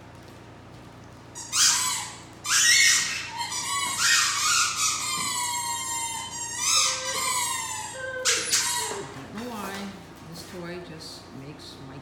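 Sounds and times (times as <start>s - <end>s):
dog howling: 2.5s - 9.2s.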